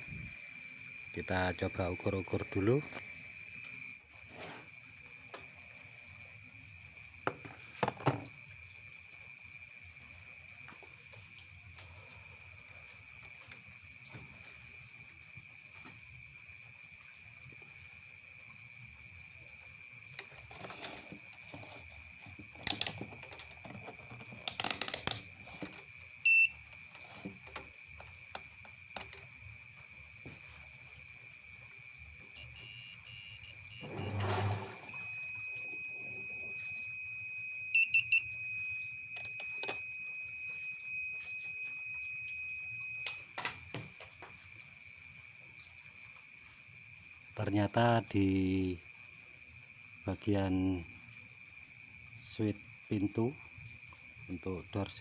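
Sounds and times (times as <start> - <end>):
crickets chirping: 0.0 - 55.0
clicks and knocks from handling probes: 22.4 - 25.8
continuity buzzer high beep: 26.2 - 26.6, 32.4 - 43.3.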